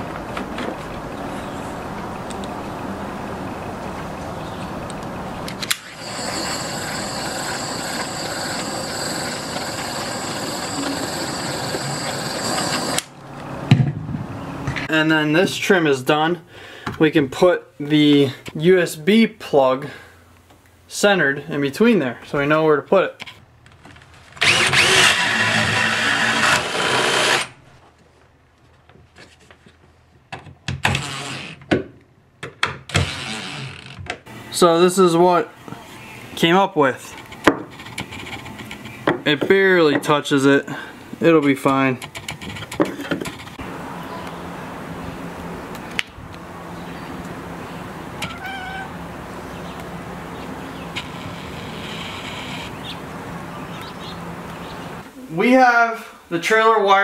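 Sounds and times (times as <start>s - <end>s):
drill driving screws: 5.7s - 13.1s, 24.4s - 27.6s, 30.8s - 31.6s, 32.9s - 34.0s
cordless drill boring into wood: 5.8s - 13.1s, 24.4s - 27.6s, 30.8s - 31.6s, 32.9s - 34.0s.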